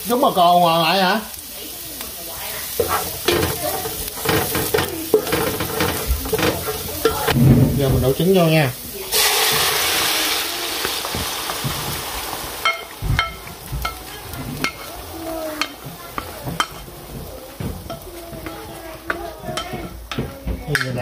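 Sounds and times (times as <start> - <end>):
egg sizzling in hot oil: 0.0 - 20.8
utensil clinking and scraping pan: 2.4 - 8.6, 12.6 - 21.0.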